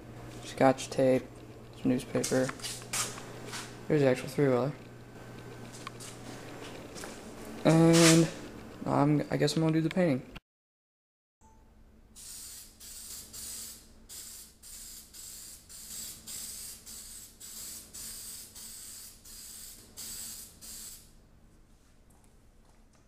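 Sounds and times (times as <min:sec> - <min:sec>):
spray can hissing bursts: 0:12.2 - 0:21.1.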